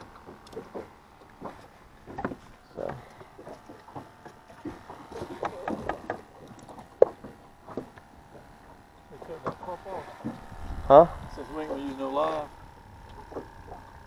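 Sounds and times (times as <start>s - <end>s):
knocks and clunks of gear: 0.1s - 9.6s.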